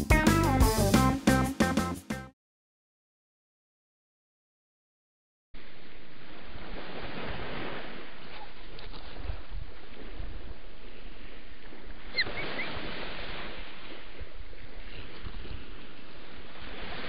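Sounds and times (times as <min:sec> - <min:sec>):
surf: 0:00.0 - 0:02.3, 0:05.6 - 0:17.0
wind: 0:05.6 - 0:17.0.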